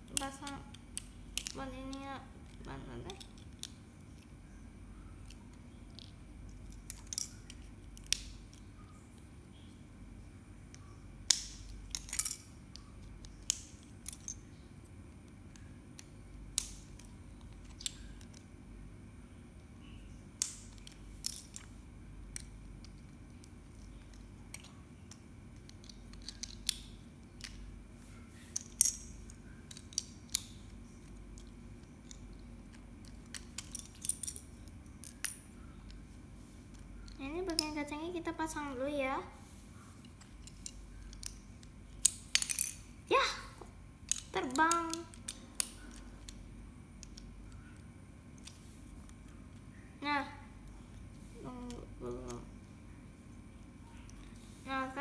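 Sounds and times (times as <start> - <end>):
low steady hum: 0.0 - 55.0
plastic bricks clicking and clattering: 22.4 - 27.6.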